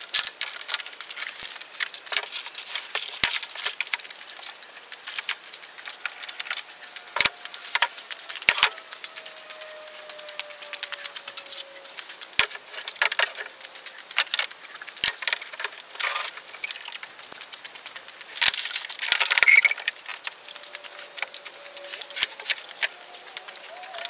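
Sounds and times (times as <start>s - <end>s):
wood scraping and clattering: 0.6s - 17.4s.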